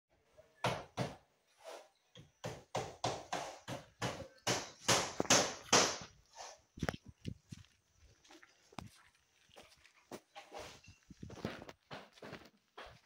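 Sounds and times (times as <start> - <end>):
sharp knocks: 2.4 - 6.1.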